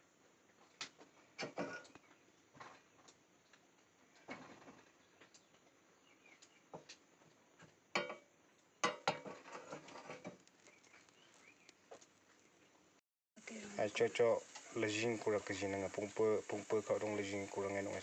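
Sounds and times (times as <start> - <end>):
grains crackling and popping: 9.2 - 12.8, 13.4 - 18.0.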